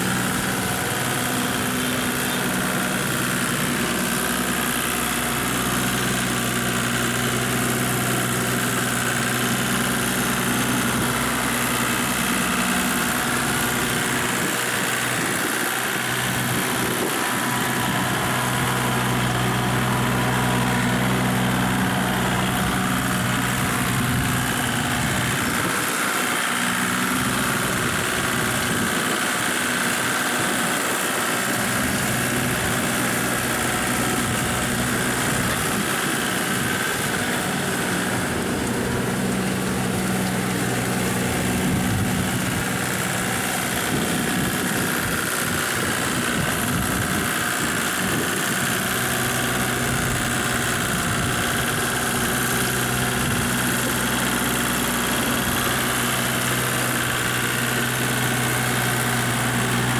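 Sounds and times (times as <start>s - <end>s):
tractor diesel engine under load: 0.0s - 59.9s.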